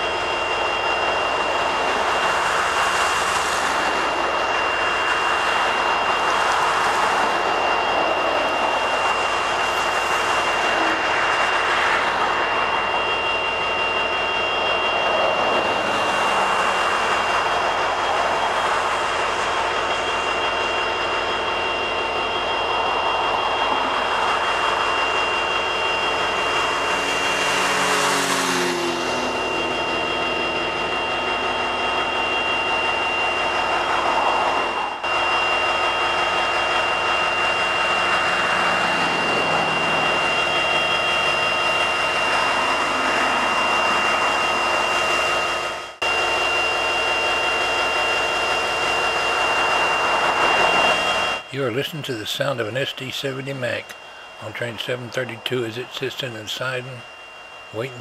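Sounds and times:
locomotive engine idling: 0.0 - 58.0
road traffic: 0.0 - 58.0
car passing by: 27.2 - 29.3.

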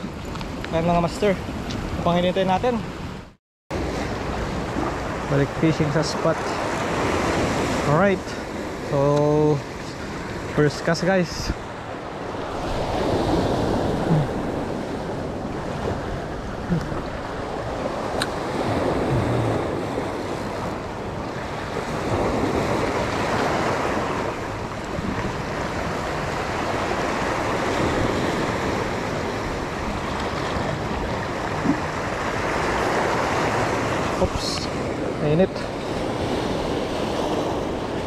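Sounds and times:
waves breaking on rocks: 3.8 - 38.0
wind buffeting microphone: 11.3 - 38.0.

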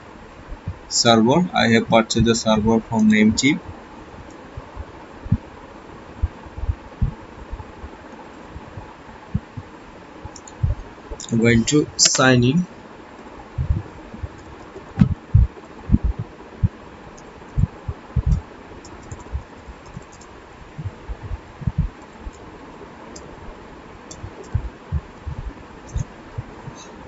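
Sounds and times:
keyboard typing: 17.5 - 22.4.

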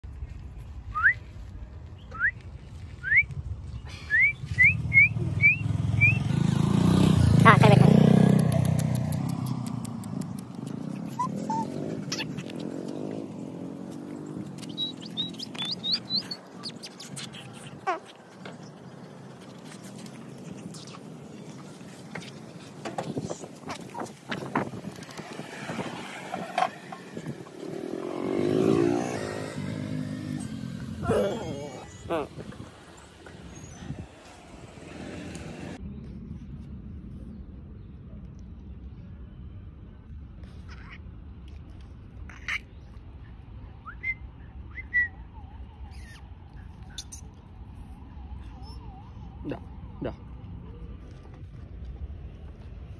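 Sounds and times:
motorcycle engine passing: 4.4 - 35.8.

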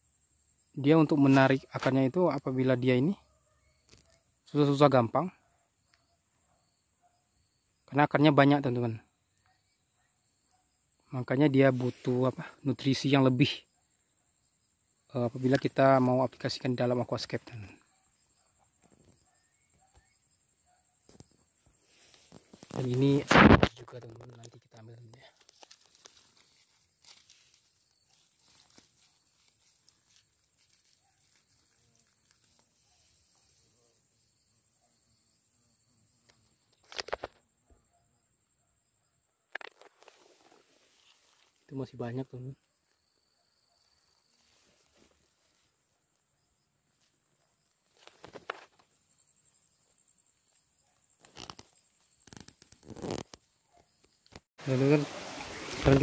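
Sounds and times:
rustling of moss and leaf litter: 24.5 - 34.1, 40.0 - 41.7, 54.6 - 56.0
footsteps in undergrowth: 25.1 - 33.8, 39.8 - 41.7, 44.2 - 45.9.

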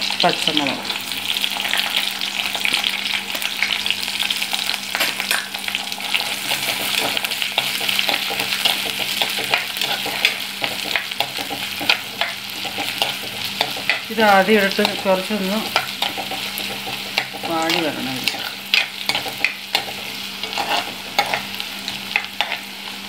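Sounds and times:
food sizzling in hot oil: 0.0 - 23.0
spatula stirring in pot: 6.4 - 22.6.

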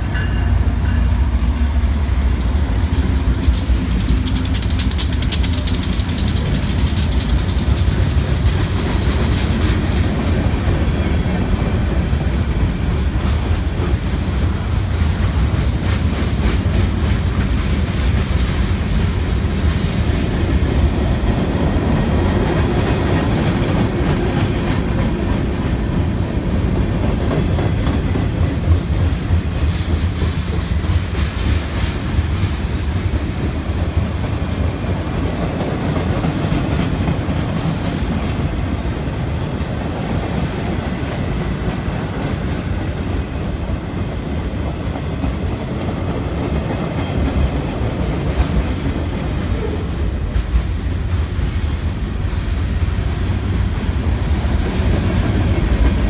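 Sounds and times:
train wheels rolling on rail: 0.0 - 56.0
wheels clicking over rail joints: 0.8 - 39.0.

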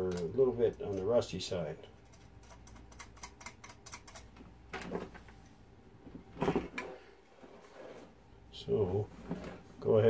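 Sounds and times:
small metal clicks and rattles: 2.0 - 4.3.

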